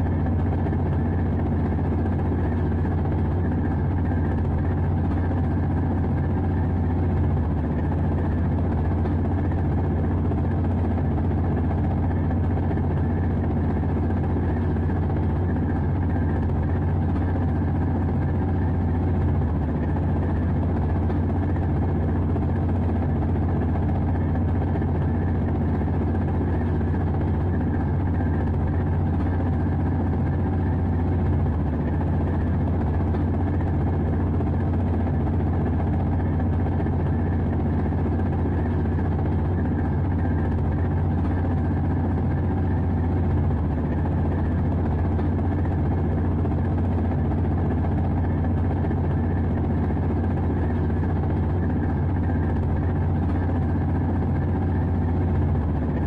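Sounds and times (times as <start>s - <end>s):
locomotive engine drone: 0.0s - 56.0s.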